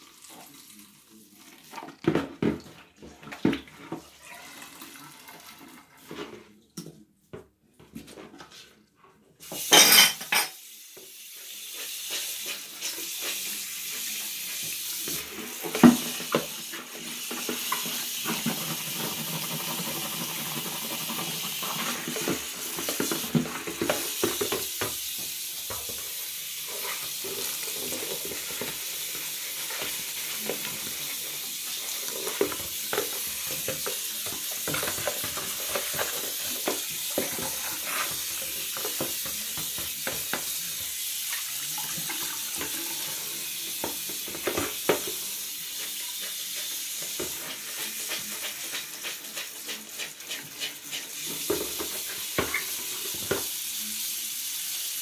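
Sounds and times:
faucet running into tub: 0:00.0 - 0:06.1, 0:09.4 - 0:55.0
sponge scrubbing: 0:45.4 - 0:52.8.

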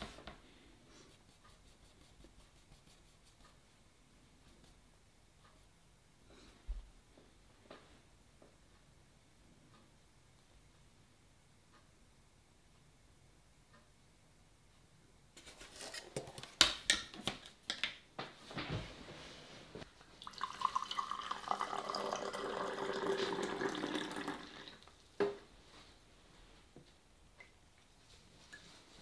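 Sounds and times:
water pouring into a mug: 0:20.2 - 0:24.9.

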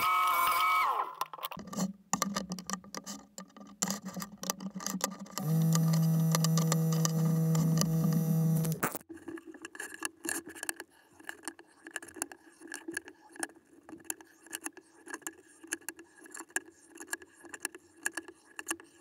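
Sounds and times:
wooden strips clacking and scraping: 0:01.2 - 0:08.2.

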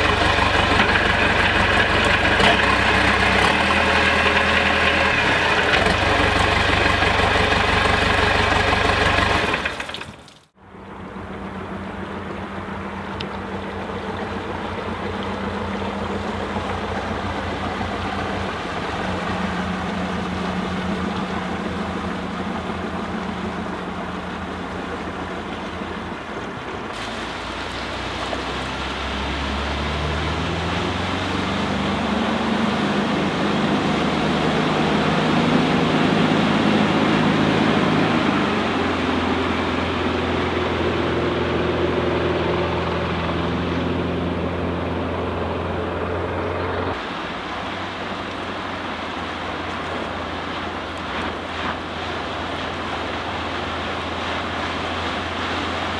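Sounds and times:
boat diesel engine running: 0:00.0 - 0:55.9.

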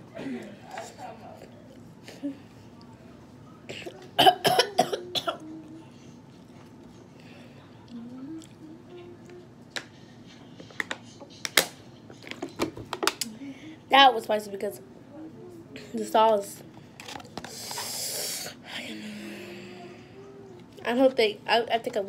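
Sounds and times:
person coughing: 0:03.7 - 0:05.5.

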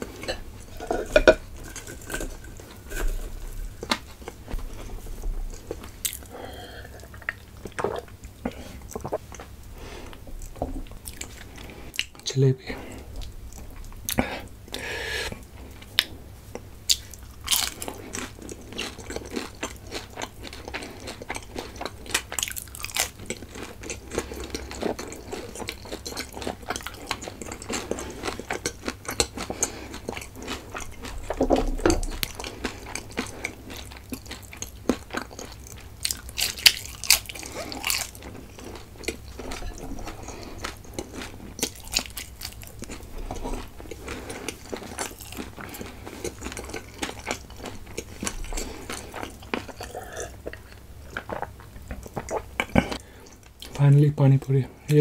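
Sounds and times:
wet chewing: 0:13.2 - 0:53.8.

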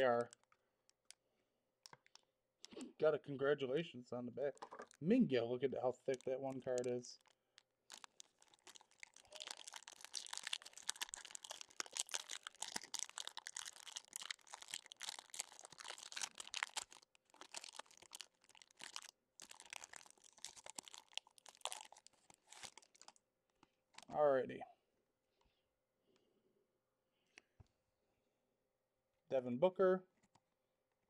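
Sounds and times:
plastic wrapping tearing and crinkling: 0:06.1 - 0:23.2.

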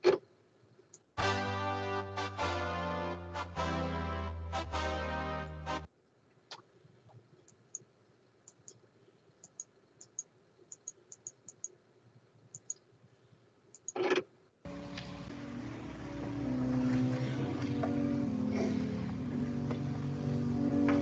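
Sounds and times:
music from computer: 0:01.2 - 0:05.9, 0:14.7 - 0:21.0
computer mouse clicks: 0:06.5 - 0:11.8, 0:12.5 - 0:12.9, 0:13.7 - 0:14.3.

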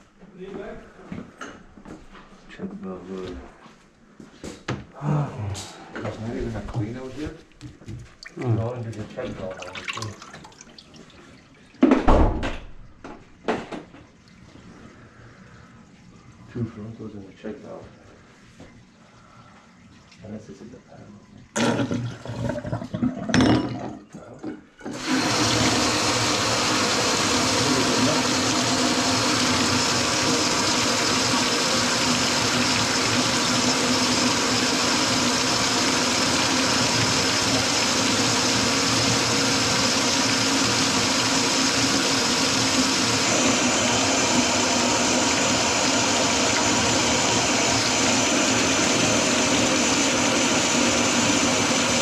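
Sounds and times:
faucet running into metal sink: 0:08.2 - 0:12.3, 0:24.9 - 0:52.0.

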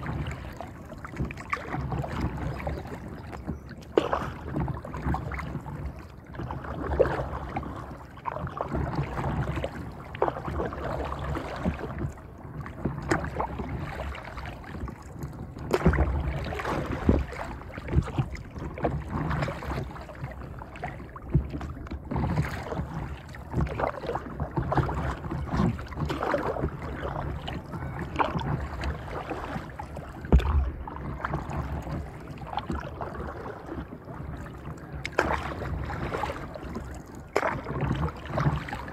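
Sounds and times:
water lapping against paddle board: 0:00.0 - 0:38.9
low rumbles: 0:30.2 - 0:32.2.

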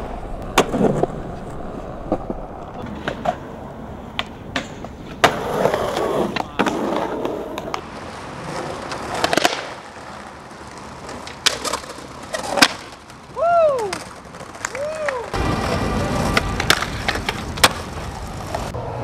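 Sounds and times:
skateboard clacks: 0:00.0 - 0:19.0
skateboard scraping on concrete ledge: 0:00.0 - 0:19.0
skateboard wheels rolling on concrete: 0:00.0 - 0:19.0.

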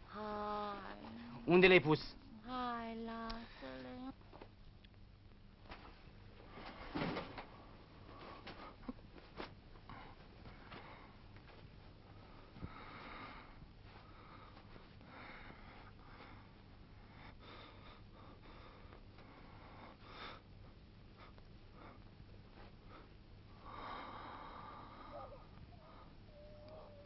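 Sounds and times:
low hum: 0:00.0 - 0:27.0
soft breathy rustles: 0:08.0 - 0:17.9.

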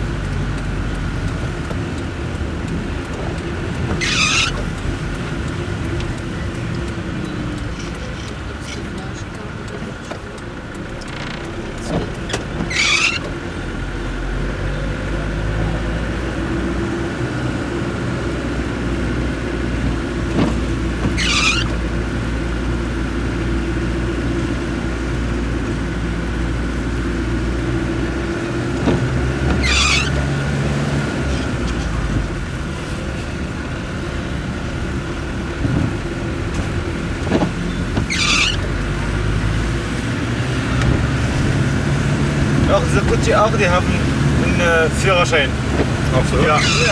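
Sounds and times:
car engine running: 0:00.0 - 0:46.9
short high squeal: 0:04.0 - 0:04.6, 0:12.7 - 0:13.3, 0:21.1 - 0:21.8, 0:29.6 - 0:30.2, 0:37.7 - 0:38.7, 0:46.5 - 0:46.9.

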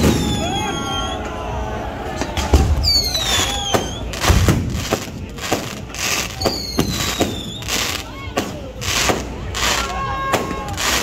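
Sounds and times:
fireworks bangs and crackles: 0:00.0 - 0:01.3, 0:02.2 - 0:11.0
whistling rockets: 0:00.0 - 0:01.4, 0:02.2 - 0:11.0
deep firework booms: 0:03.7 - 0:07.4.

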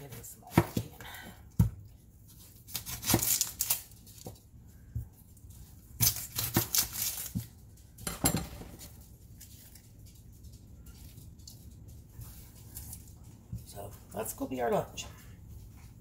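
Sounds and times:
crisp onion cutting: 0:01.5 - 0:07.7.

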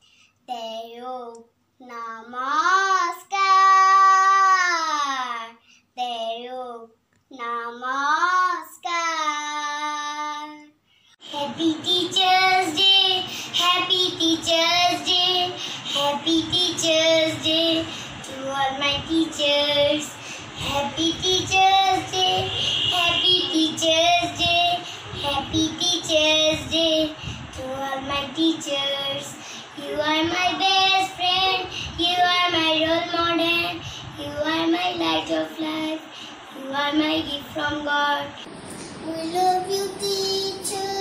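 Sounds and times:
recorded children's song: 0:00.0 - 0:41.0
child singing unaccompanied: 0:00.5 - 0:41.0.

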